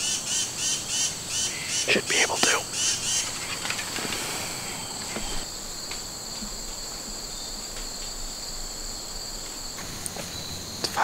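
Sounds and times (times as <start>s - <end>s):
crickets trilling: 0.0s - 11.0s
faint clicks: 3.2s - 6.8s.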